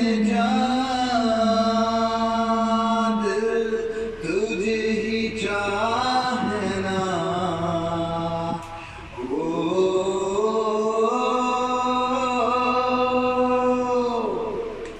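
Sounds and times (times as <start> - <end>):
man singing long notes: 0.0 - 14.9.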